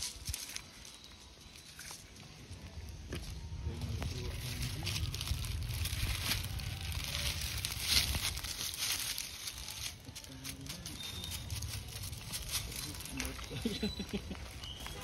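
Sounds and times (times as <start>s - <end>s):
plastic wrapper crinkling: 4.2s - 15.0s.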